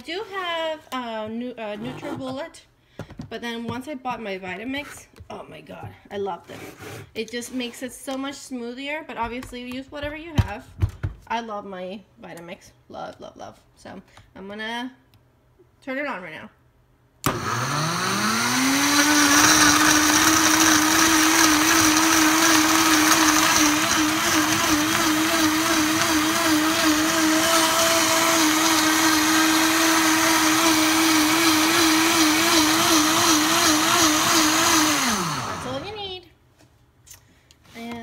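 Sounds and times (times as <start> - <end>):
blender motor running: 17.3 - 35.9.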